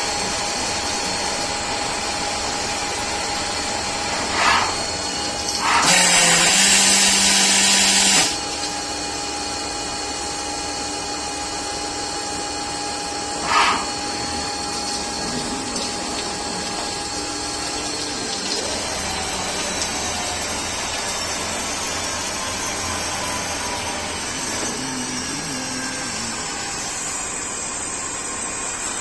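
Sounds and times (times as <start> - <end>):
lathe spindle whining: 0.0 - 29.0
loud hissing bursts: 4.0 - 8.4, 13.4 - 14.5
coolant pouring and splashing: 14.7 - 29.0.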